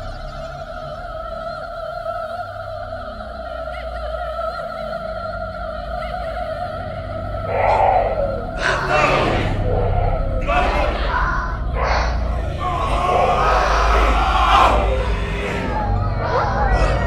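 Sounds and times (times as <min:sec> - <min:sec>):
low pulsing rumble: 0:05.4 - 0:17.0.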